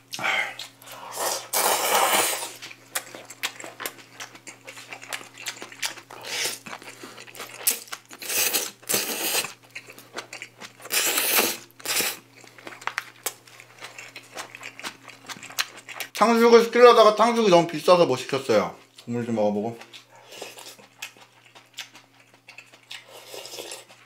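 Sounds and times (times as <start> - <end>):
slurping noodles: 0.9 - 2.7, 6.2 - 6.6, 8.2 - 9.6, 10.8 - 12.2, 23.0 - 24.0
chewing: 2.4 - 16.2, 18.8 - 24.0.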